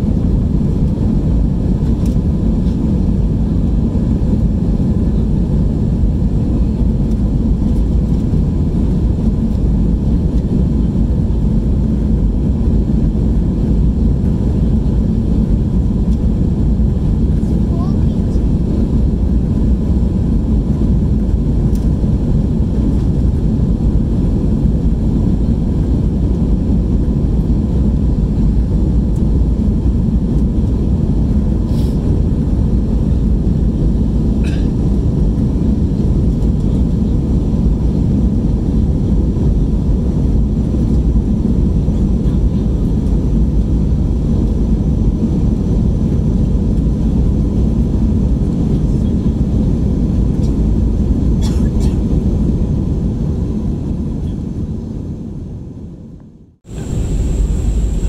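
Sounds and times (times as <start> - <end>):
airplane cabin engine and airflow noise: 0.0 - 58.0
faint steady hum: 53.0 - 58.0.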